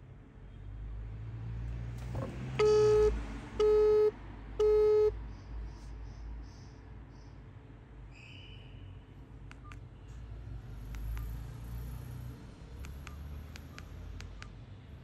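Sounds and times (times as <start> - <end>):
telephone busy tone beeps: 2.6 - 5.1.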